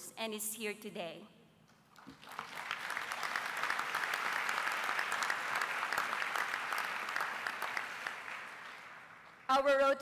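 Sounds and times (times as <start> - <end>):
audience applauding: 2.0 - 9.5.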